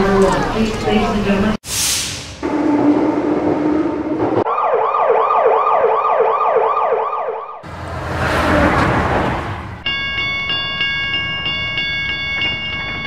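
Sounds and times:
train rumble and hum: 0.0s - 4.5s, 7.6s - 13.0s
emergency siren sweeping: 1.9s - 10.9s.

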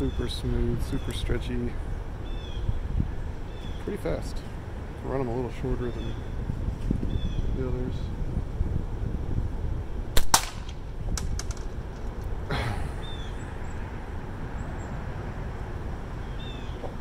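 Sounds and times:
slingshot bands snapping: 10.2s - 11.7s.

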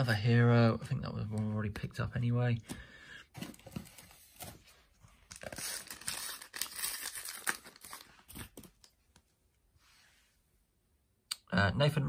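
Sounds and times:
card pack wrapper tearing and crinkling: 5.2s - 8.9s
wrapper crackling: 5.3s - 8.9s.

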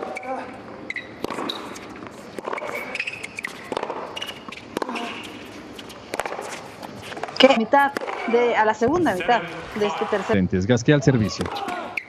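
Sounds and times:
tennis ball bouncing on hard court: 0.9s - 9.2s
racket hitting tennis ball: 1.2s - 9.1s.

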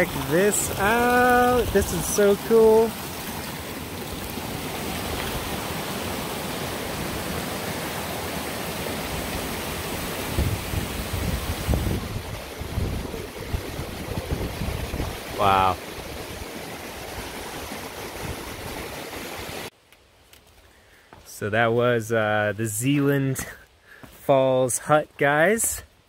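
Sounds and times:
waterfall rushing over rocks: 0.0s - 19.7s.

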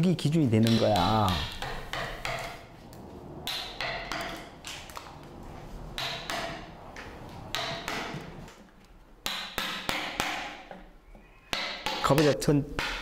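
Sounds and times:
hammer tapping chisel: 0.6s - 2.6s, 11.5s - 13.0s.

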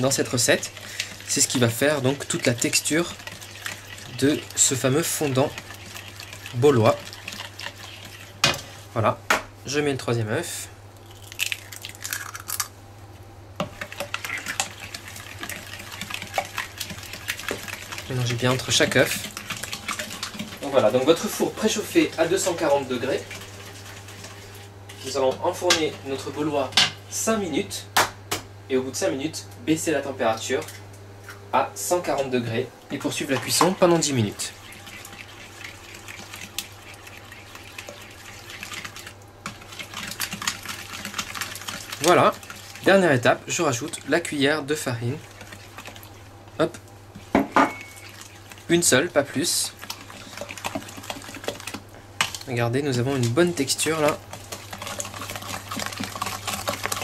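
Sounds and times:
spoon beating batter in bowl: 0.0s - 8.7s, 13.6s - 26.1s, 33.0s - 57.0s
egg breaking: 11.0s - 12.8s.

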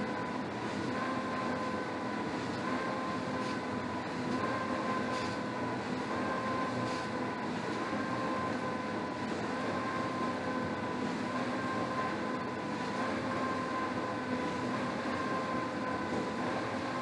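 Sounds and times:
rowing machine fan whirring: 0.0s - 17.0s.

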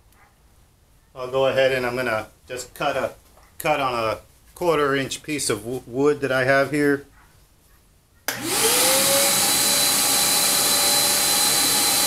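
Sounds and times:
band saw motor: 8.3s - 12.0s
shop vac running: 8.3s - 12.0s.

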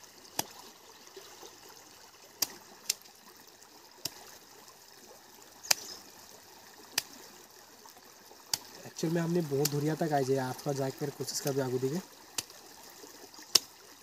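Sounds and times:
stream trickling: 0.0s - 14.0s
machete cutting fruit clicks: 5.7s - 5.9s.

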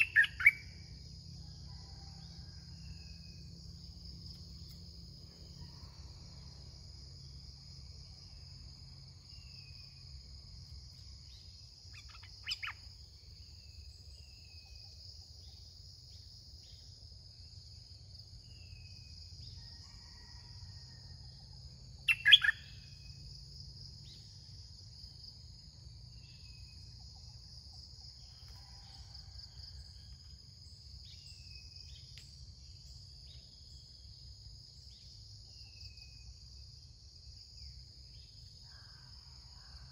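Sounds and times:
faint bird chirps: 0.0s - 1.0s, 10.9s - 16.8s, 22.0s - 23.3s.

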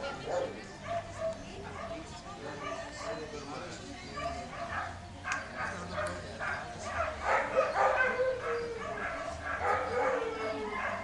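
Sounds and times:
dog barking and yipping: 4.2s - 11.0s.

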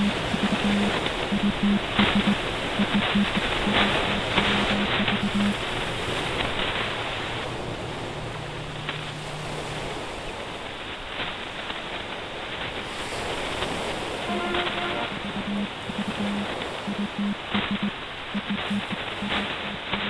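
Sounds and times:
low pulsing tones: 0.0s - 10.5s, 14.3s - 19.3s
steady low hum: 0.0s - 11.2s, 14.2s - 19.8s
surf: 0.0s - 20.0s
wind: 0.0s - 20.0s.

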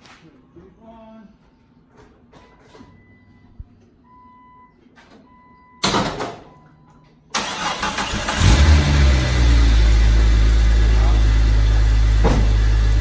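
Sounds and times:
car engine starting and idling: 7.3s - 13.0s.

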